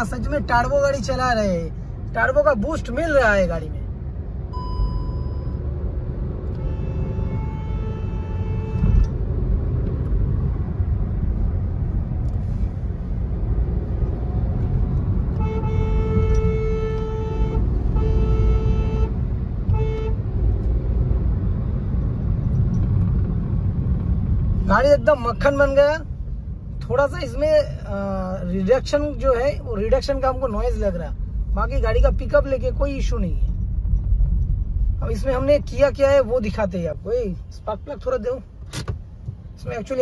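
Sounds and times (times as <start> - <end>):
car engine and road rumble: 0.0 - 40.0
car horns honking: 6.5 - 9.2, 15.3 - 20.2.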